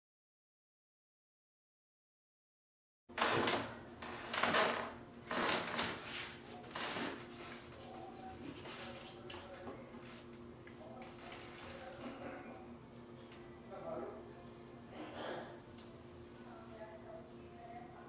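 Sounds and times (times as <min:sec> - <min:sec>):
marker scratching on paper: 0:07.6 - 0:09.5.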